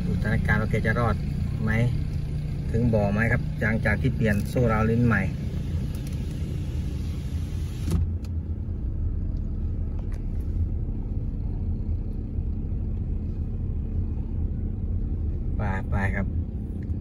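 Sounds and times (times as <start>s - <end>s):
road and engine rumble: 0.0s - 17.0s.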